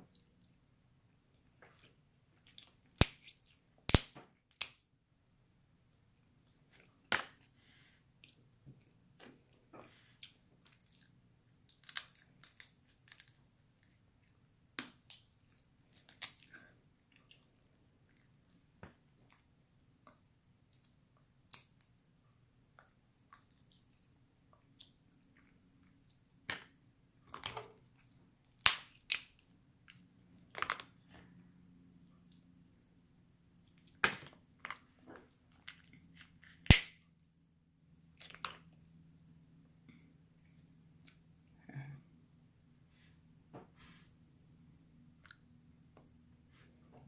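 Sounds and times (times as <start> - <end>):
crab shells cracking: 28.4 - 29.4
picking and chewing sounds: 45.2 - 45.5.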